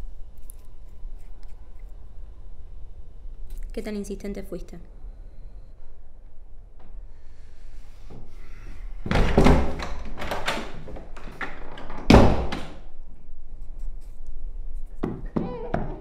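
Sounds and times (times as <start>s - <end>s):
door slamming shut: 9.1s - 10.8s, 11.8s - 12.8s
door knocks and rattles: 9.1s - 12.8s.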